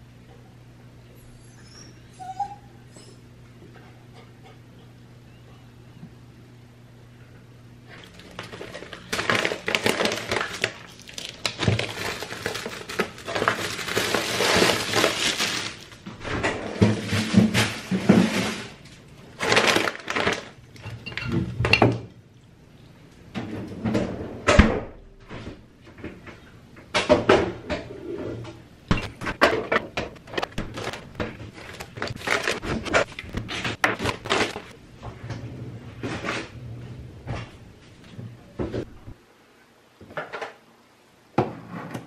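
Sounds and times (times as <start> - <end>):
bag and packaging rustling: 7.9 - 16.1, 16.7 - 20.6, 30.1 - 34.8.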